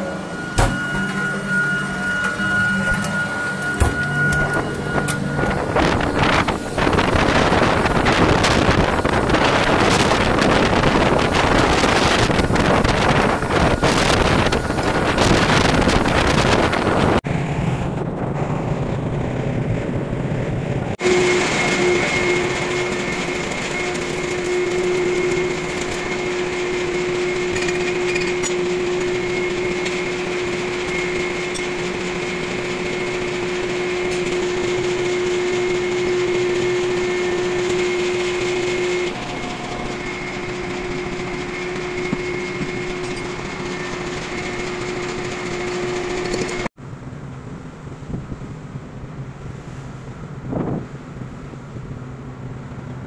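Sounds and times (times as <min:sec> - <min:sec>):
low rumble: 0:00.0 - 0:25.5
wind and sea rushing: 0:00.0 - 0:27.7, 0:29.1 - 0:53.0
machinery hum with whine: 0:00.0 - 0:53.0.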